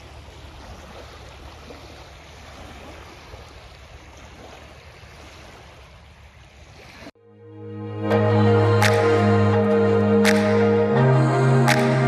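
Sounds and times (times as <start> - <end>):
small waves lapping on pebbles: 0.0 - 7.2.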